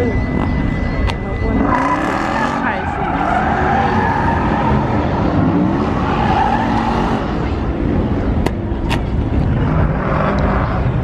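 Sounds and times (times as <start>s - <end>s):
tyres squealing on asphalt: 0.0s - 7.7s
car engine revving: 1.4s - 11.0s.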